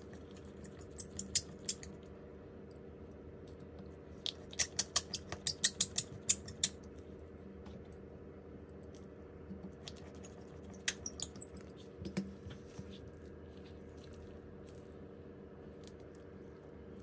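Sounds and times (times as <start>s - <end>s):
steady low hum: 0.0s - 17.0s
small tools clicking and tapping: 4.3s - 6.8s.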